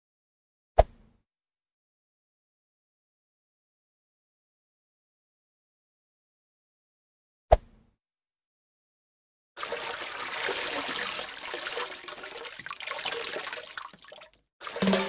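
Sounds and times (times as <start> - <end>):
hose water splashing on concrete: 9.6 - 15.0.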